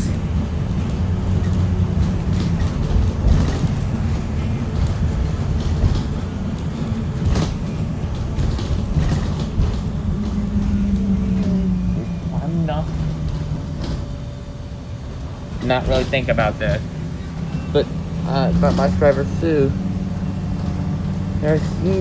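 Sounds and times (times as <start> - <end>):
bus engine drone: 0.0 - 22.0
road rumble: 0.0 - 22.0.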